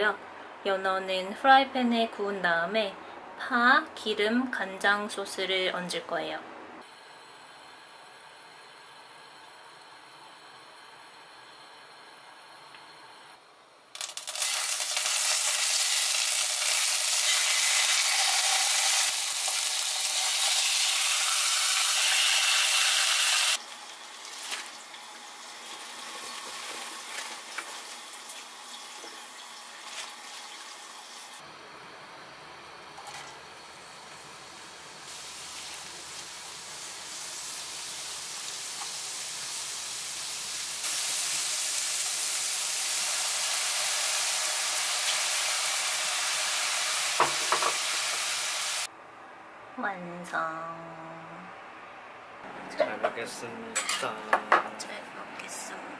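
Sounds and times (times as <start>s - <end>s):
fish sizzling in hot oil: 14.0s - 31.4s, 35.0s - 48.9s
onions frying in oil: 14.0s - 32.8s, 33.5s - 48.9s
water simmering in a pan: 35.0s - 48.9s.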